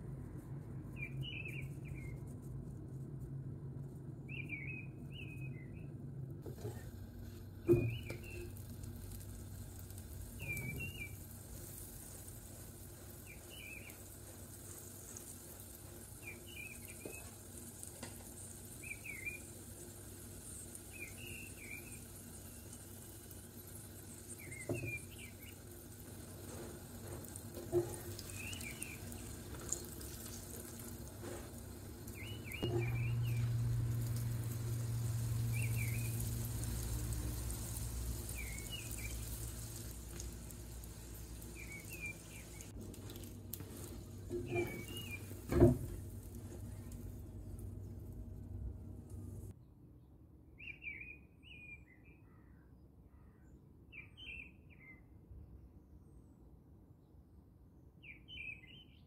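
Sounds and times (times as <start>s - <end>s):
bird chirping: 0.9s - 2.3s, 4.3s - 6.0s, 10.3s - 11.2s, 13.2s - 14.1s, 18.7s - 19.5s, 20.4s - 22.8s, 27.7s - 30.3s, 32.1s - 34.3s, 35.2s - 40.3s, 40.9s - 45.8s
flatbread sizzling on a hot pan: 6.4s - 48.5s
low hum: 31.5s - 49.6s.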